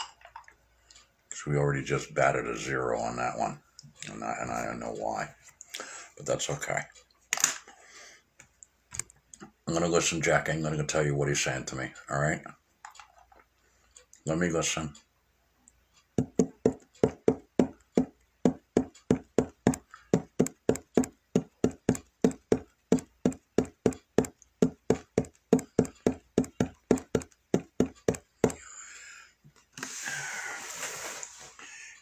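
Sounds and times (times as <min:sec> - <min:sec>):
rhythmic knocking: 0:15.9 - 0:28.8.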